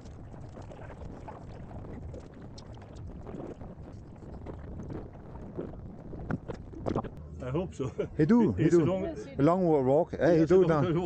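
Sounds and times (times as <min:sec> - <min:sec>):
wind buffeting microphone: 0:00.0 - 0:07.3.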